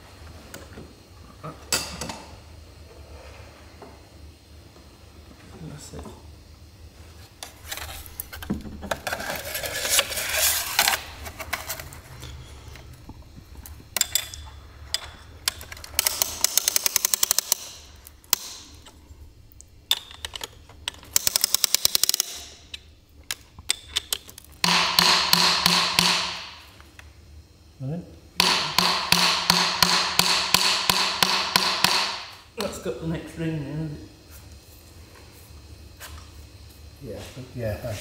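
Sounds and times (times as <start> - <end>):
metal parts scraping: 7.4 - 18.9
ratchet clicking: 14.0 - 19.0, 19.9 - 26.1.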